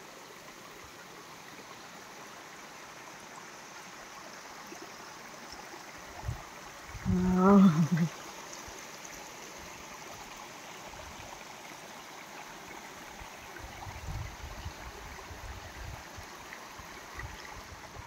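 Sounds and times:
stream running over stones: 0.0s - 18.0s.

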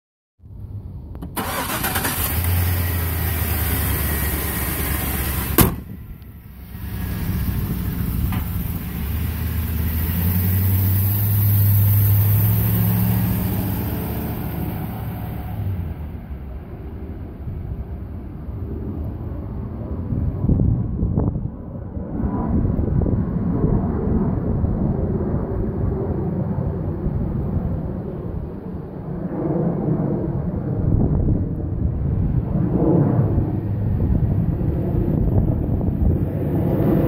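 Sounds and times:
truck engine running: 1.3s - 16.2s
sharp bang: 5.5s - 6.1s.

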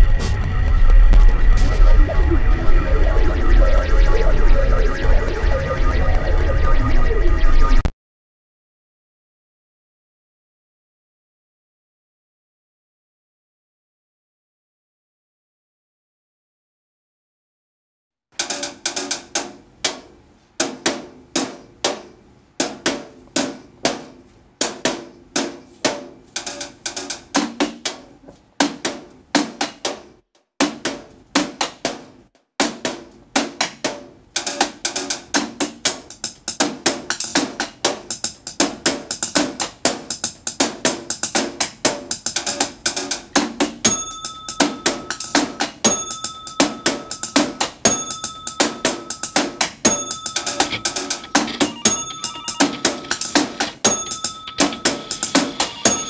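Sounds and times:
repeating ringing tone: 0.0s - 7.9s, 43.8s - 56.0s
drumsticks hitting office equipment: 49.8s - 55.5s.

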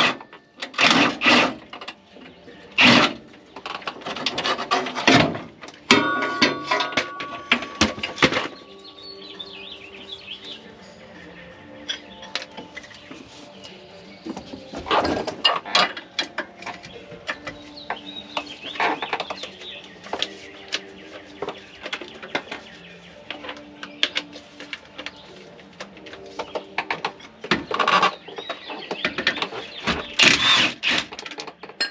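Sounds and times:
hand tools knocking on metal: 4.3s - 8.6s
bird calls: 16.8s - 24.4s, 26.3s - 30.6s.

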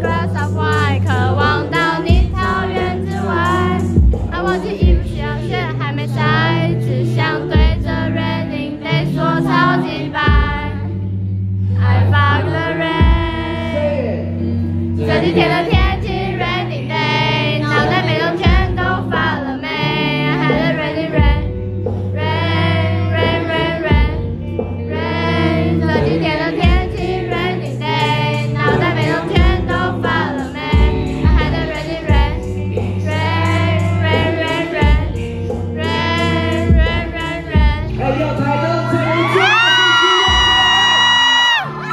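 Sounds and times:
steady beat: 0.0s - 5.4s, 15.1s - 16.2s, 17.8s - 19.1s, 26.0s - 37.9s, 39.5s - 41.4s
man singing into a microphone: 37.9s - 41.9s.

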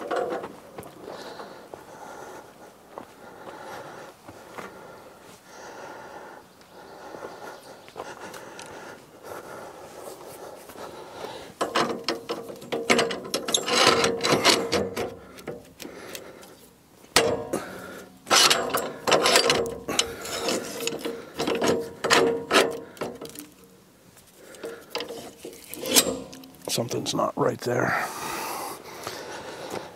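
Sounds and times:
metal ratcheting and grinding: 11.6s - 16.2s, 17.1s - 23.7s, 24.4s - 26.8s.

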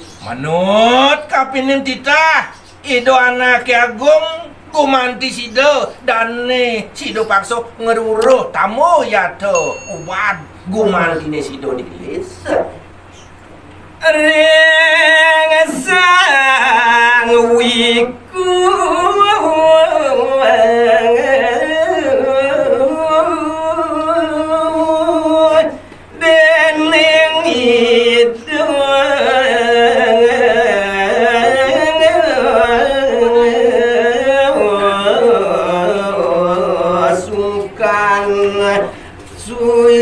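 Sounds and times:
man singing into a microphone: 14.0s - 40.0s
singer breathing: 25.8s - 26.1s, 38.9s - 39.3s.

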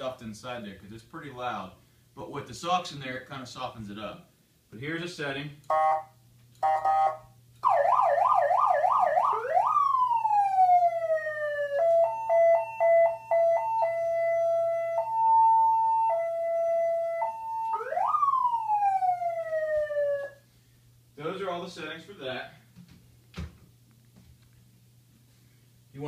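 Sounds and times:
muffled electronic siren: 5.7s - 20.5s.

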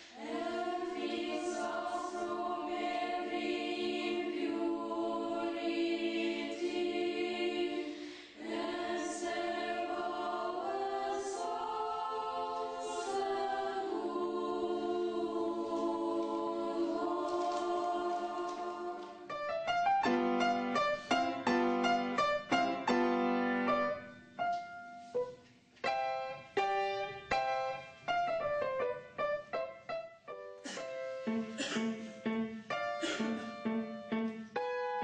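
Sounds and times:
girls' choir singing: 0.0s - 19.5s
upright piano playing: 18.9s - 35.0s.

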